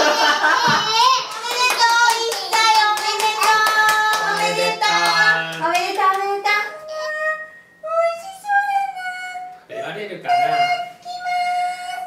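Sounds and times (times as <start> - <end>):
voices singing: 0.0 - 9.3
rhythmic hand clapping: 1.3 - 6.5.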